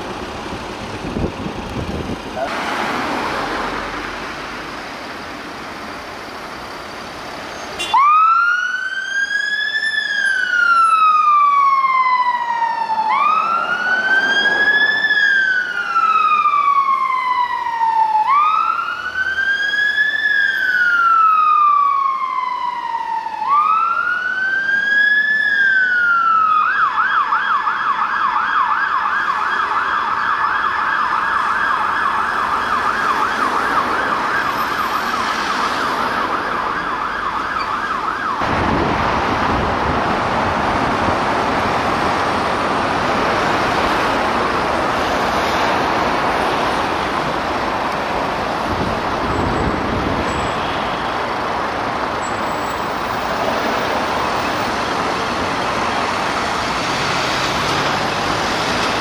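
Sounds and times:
siren wailing: 7.9 - 38.6.

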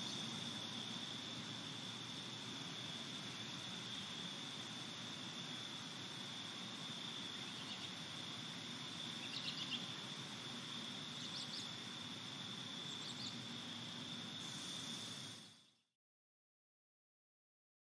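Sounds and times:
bird chirps: 7.4 - 8.0, 9.2 - 10.0, 11.2 - 11.7, 12.8 - 13.4.

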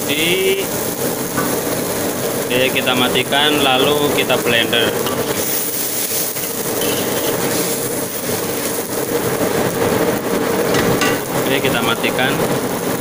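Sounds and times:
blower fan running: 0.0 - 13.0
sauce boiling in a wok: 0.0 - 13.0.

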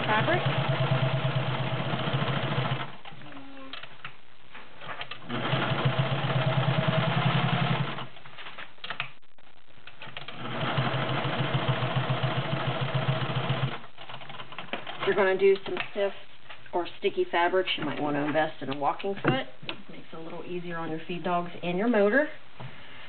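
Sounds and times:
sewing machine stitching: 0.0 - 3.0, 5.1 - 8.1, 10.2 - 15.0.

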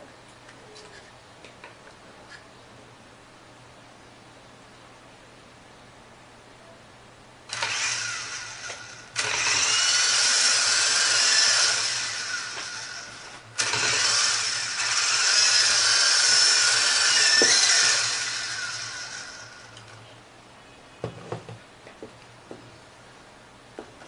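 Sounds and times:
toy helicopter motors whining: 7.5 - 19.9.

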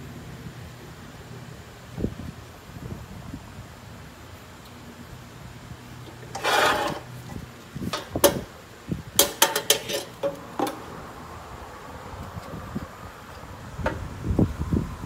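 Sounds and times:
metal scraping rub: 6.2 - 8.2, 9.4 - 10.7
sharp metallic clinks and knocks: 9.2 - 10.8.

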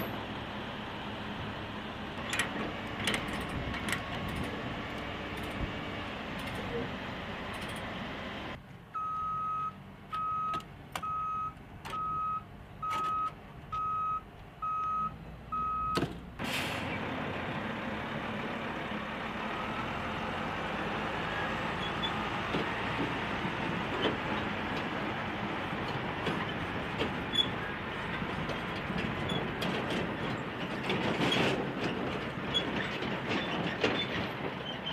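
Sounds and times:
heavy truck engine running: 0.0 - 8.8, 9.7 - 34.9
trailer and chains clanking: 2.2 - 6.8, 7.4 - 8.0, 21.8 - 34.9
truck reversing alarm beeps: 8.9 - 16.0, 19.5 - 20.1.

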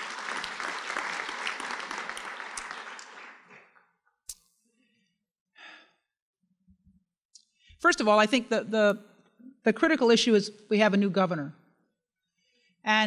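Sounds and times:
audience applauding: 0.0 - 3.8.

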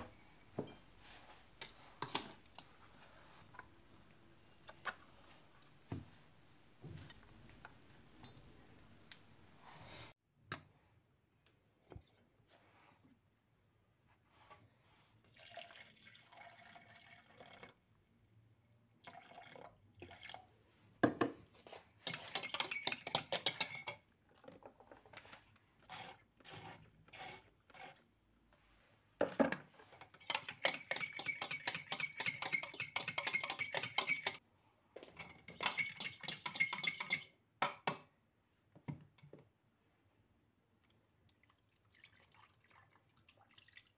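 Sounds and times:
spoon scraping and clinking in jug: 22.0 - 24.0, 30.0 - 34.4, 35.2 - 37.3.

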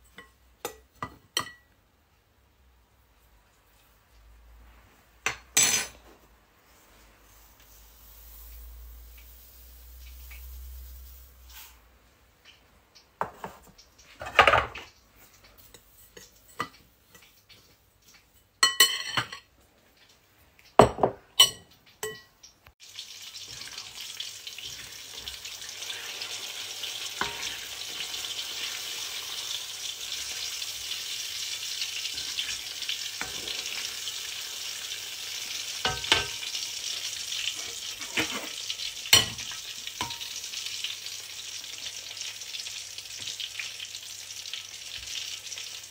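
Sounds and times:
oil sizzling in a pan: 0.0 - 1.8, 3.0 - 45.9
metal ladle clinking on pan: 18.6 - 19.5, 20.8 - 22.3.

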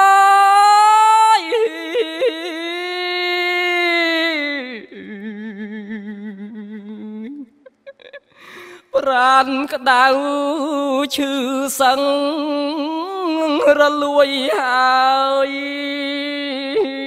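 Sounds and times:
man chanting: 0.0 - 4.9, 8.9 - 17.0.

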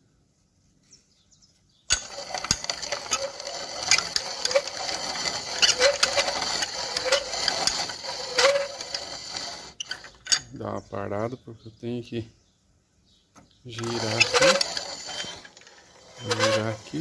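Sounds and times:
lathe tool bit cutting metal: 1.9 - 10.4, 13.8 - 17.0.

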